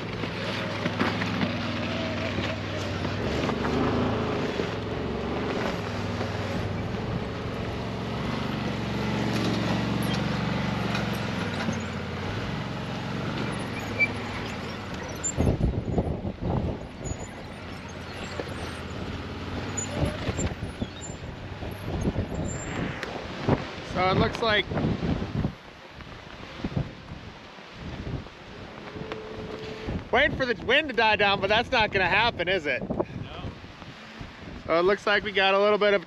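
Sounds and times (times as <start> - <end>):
vehicle engine running: 0.0 - 25.1
wind buffeting microphone: 14.2 - 34.7.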